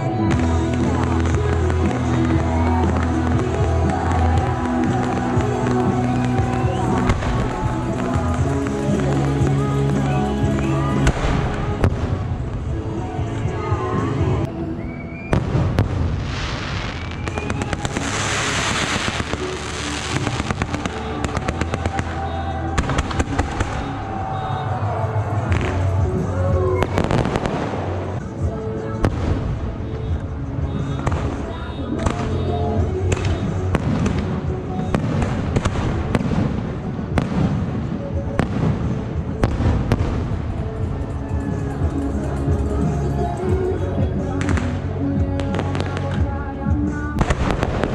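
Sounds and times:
firework crackle: 0.0s - 47.9s
firework hissing spray: 16.1s - 21.5s.

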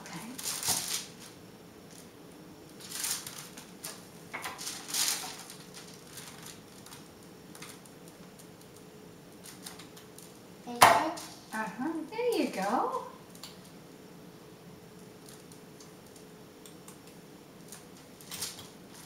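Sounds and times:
foil crinkling: 0.2s - 2.1s, 2.7s - 8.8s, 9.4s - 10.4s, 17.6s - 19.0s.

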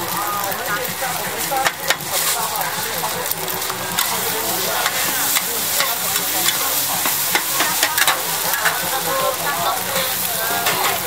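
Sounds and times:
egg sizzling in wok: 0.0s - 11.0s
metal spatulas scraping pan: 1.4s - 9.5s.

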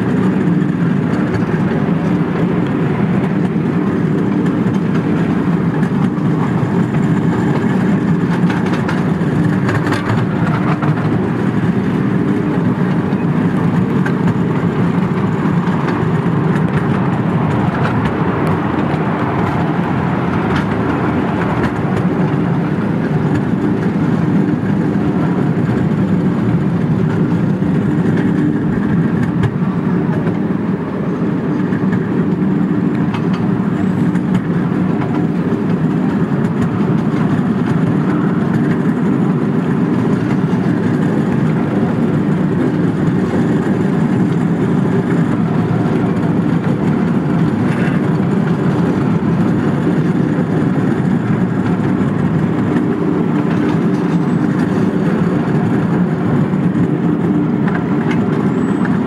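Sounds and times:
miniature train running on rails: 0.0s - 59.0s.

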